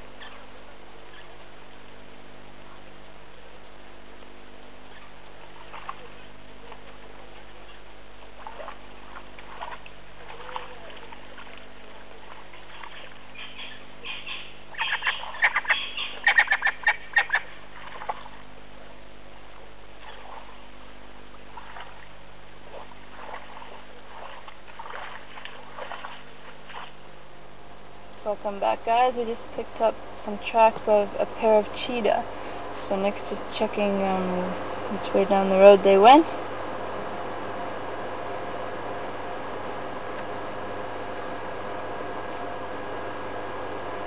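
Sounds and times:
steady low hum: 0:00.0 - 0:44.0
birds chirping: 0:12.6 - 0:17.6.

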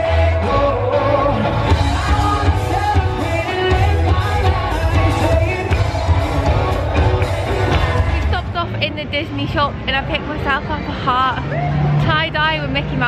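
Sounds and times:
man singing: 0:00.0 - 0:06.8
electric guitar: 0:00.0 - 0:08.7
drums: 0:00.0 - 0:12.6
heavy bass: 0:00.0 - 0:13.0.

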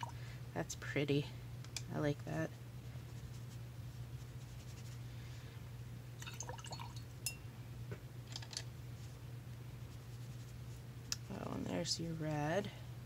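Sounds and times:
steady low hum: 0:00.0 - 0:13.0
brush dabbing paper: 0:02.9 - 0:05.0, 0:09.8 - 0:11.9
small brush clicks: 0:11.0 - 0:11.4.

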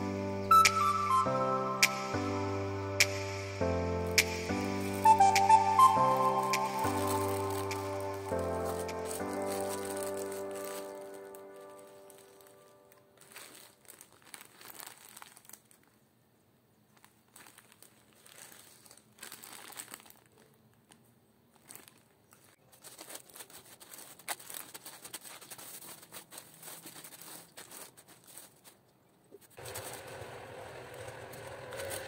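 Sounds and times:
plastic bags crinkling: 0:04.7 - 0:16.2, 0:16.8 - 0:32.0.

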